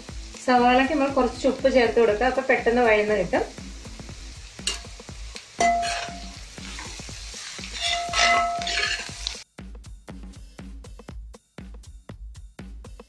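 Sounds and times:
onions sizzling in oil: 0:00.0 - 0:09.4
background music with beat: 0:00.0 - 0:13.0
spatula scraping pan: 0:05.6 - 0:09.3.

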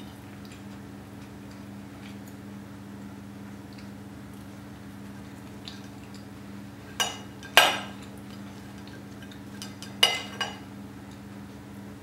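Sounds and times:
steady low hum: 0:00.0 - 0:12.0
cutlery clinking on a plate: 0:09.2 - 0:10.6.

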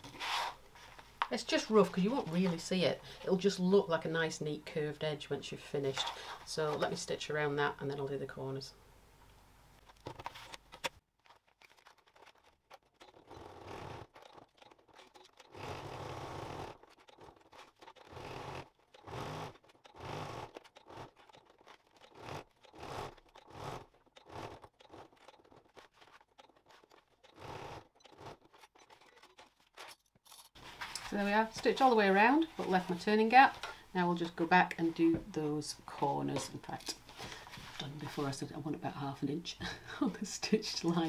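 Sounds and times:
sewing machine stitching: 0:11.9 - 0:29.7.

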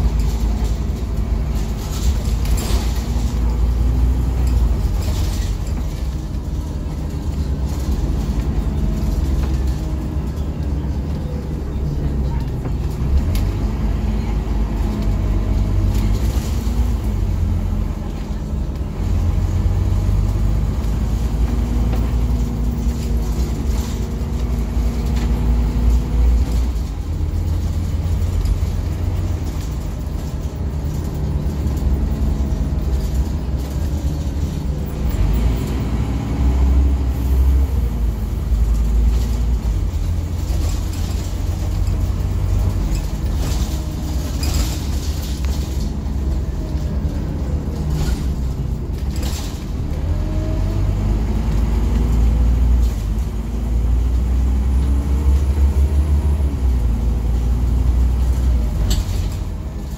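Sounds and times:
bus engine and road rumble: 0:00.0 - 0:59.9.

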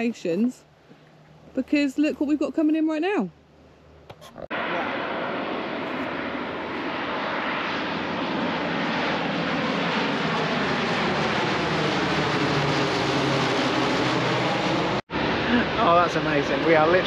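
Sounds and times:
propeller aircraft drone: 0:00.0 - 0:02.4, 0:03.0 - 0:17.0.

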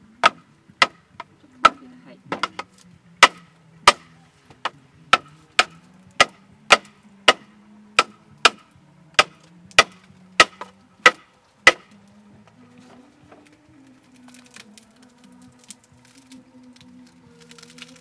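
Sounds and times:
sharp wooden knocks on bamboo: 0:00.2 - 0:12.0.

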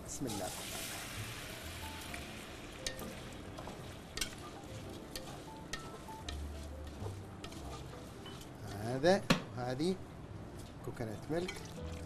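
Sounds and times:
garlic sizzling in oil: 0:00.0 - 0:09.1
wooden spoon scraping pot: 0:03.6 - 0:09.0.

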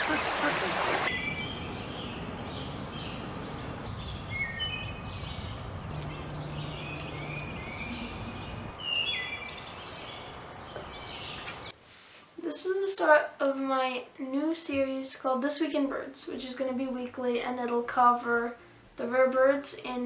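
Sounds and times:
songbirds chirping: 0:00.8 - 0:11.8.

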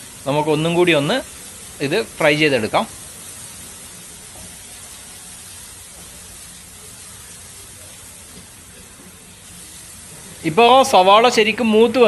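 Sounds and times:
onions frying in oil: 0:00.0 - 0:12.0.

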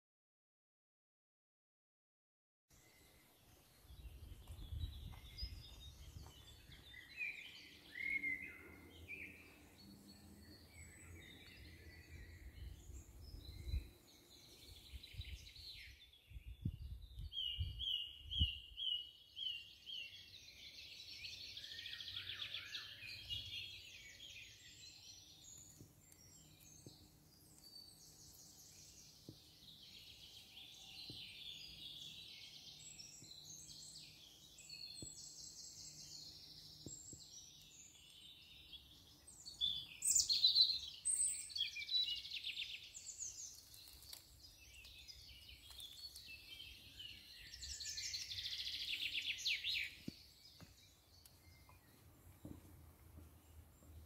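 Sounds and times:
songbirds chirping: 0:02.7 - 0:54.0.

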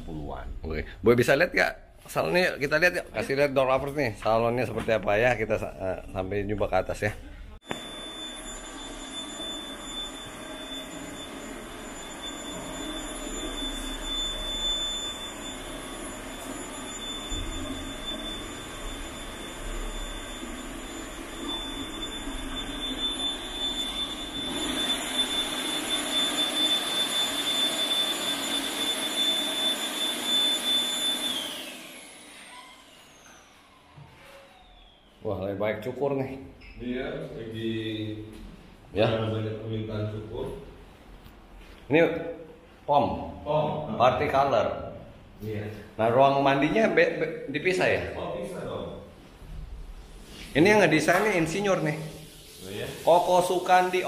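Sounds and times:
blower dryer running: 0:07.6 - 0:34.8.

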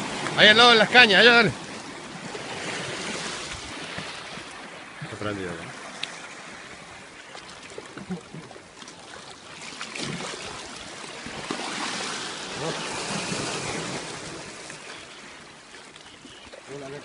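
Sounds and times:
sea water splashing on rocks: 0:07.3 - 0:15.0.

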